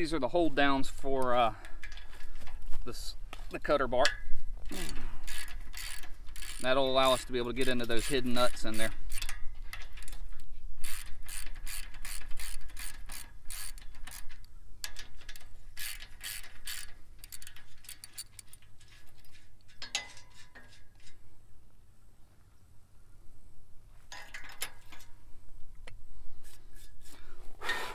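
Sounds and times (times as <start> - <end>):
socket ratchet clicking: 4.8 - 6.6, 10.8 - 18.6.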